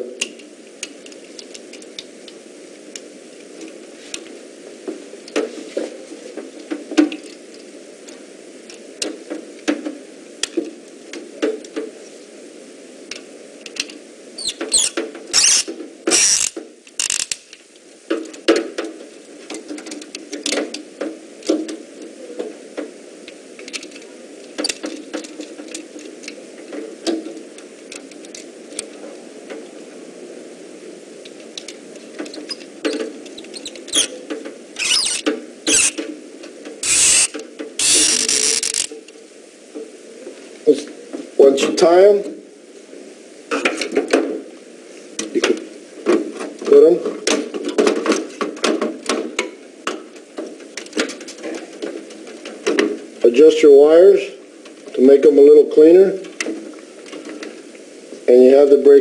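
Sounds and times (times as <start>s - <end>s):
screwdriver turning screws: 14.4s - 17.4s, 33.6s - 34.1s, 34.8s - 36.0s, 36.8s - 38.9s.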